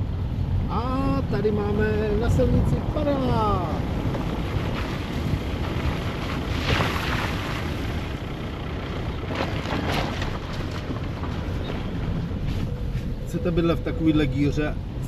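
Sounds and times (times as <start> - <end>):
wind noise on microphone: 0.0 - 8.3
car engine and tyres rumbling: 0.0 - 15.0.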